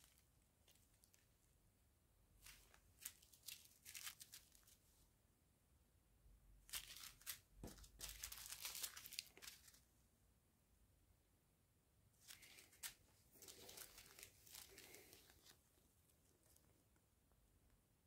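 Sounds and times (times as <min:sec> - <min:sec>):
plastic bags crinkling: 0:02.4 - 0:04.8, 0:06.7 - 0:09.8, 0:12.3 - 0:15.6.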